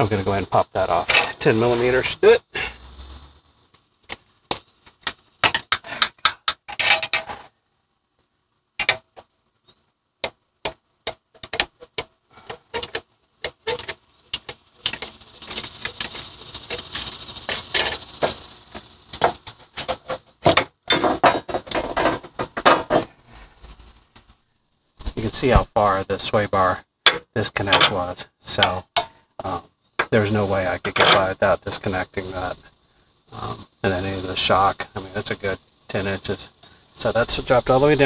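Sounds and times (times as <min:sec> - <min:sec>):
metallic clicks of hand tools: 0:10.2 - 0:20.7.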